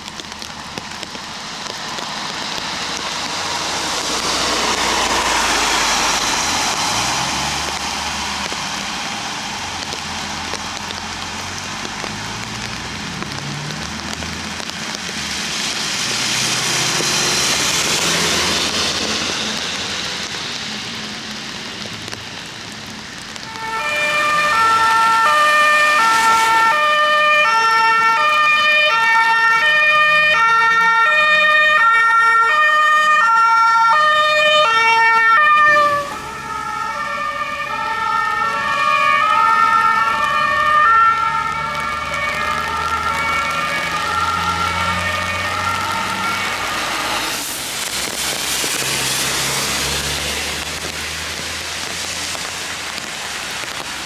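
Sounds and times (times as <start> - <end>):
tyres hissing on wet road: 0.0 - 54.0
two-tone emergency siren: 23.4 - 50.3.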